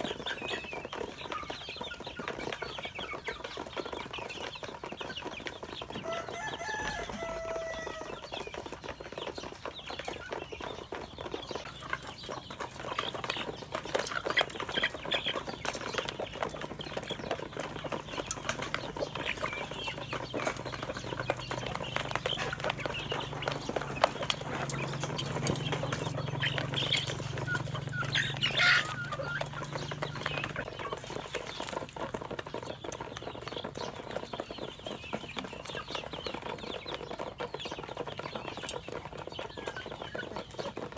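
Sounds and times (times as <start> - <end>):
chicks peeping and clucking: 0.0 - 40.9
loud chicken call: 6.0 - 8.4, 22.0 - 30.5.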